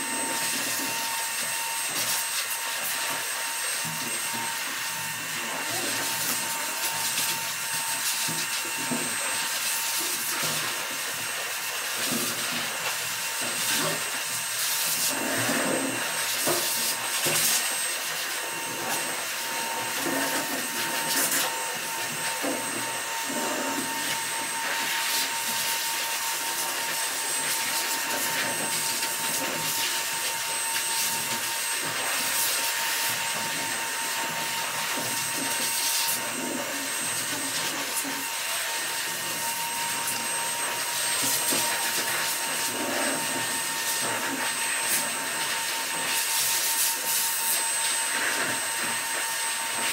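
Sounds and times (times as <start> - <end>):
electric blower motor whirring: 0.0 - 49.9
brush rasping through dog fur: 11.9 - 49.0.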